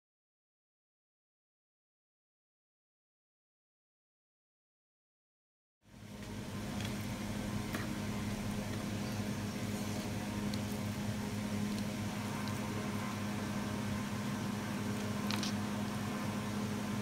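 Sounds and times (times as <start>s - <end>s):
mechanical hum: 5.8s - 17.0s.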